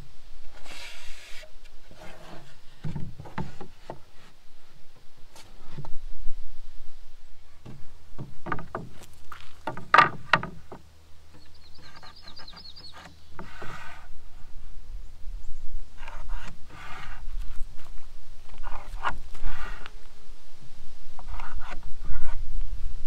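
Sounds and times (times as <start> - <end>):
low steady hum: 0.0 - 23.0
wooden boards knocking on table: 7.6 - 10.8.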